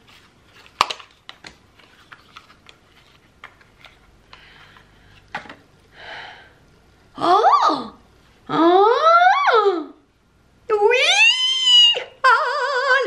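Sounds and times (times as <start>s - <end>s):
paper rustling: 0.0s - 5.2s.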